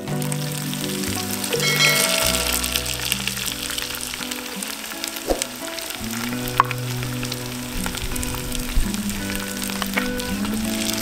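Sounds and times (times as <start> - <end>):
background music: 0.0 - 11.0
onion sizzling in hot oil: 0.0 - 11.0.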